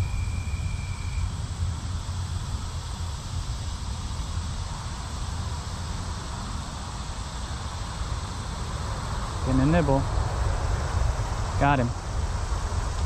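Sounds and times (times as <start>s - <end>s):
high insect buzz: 0.0s - 10.2s.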